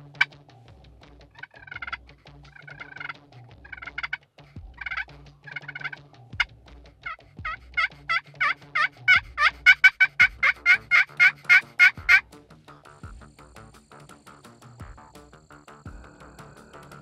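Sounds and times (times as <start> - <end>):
turkey call yelps: 7.5 - 12.2.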